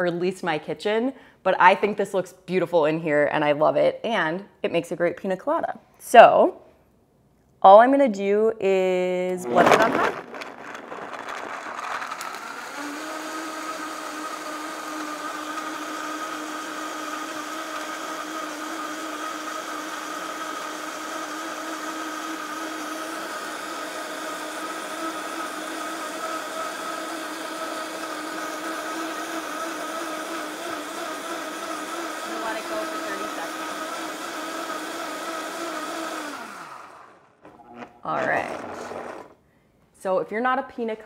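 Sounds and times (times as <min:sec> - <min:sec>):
blender motor whining: 0:09.4 - 0:39.4.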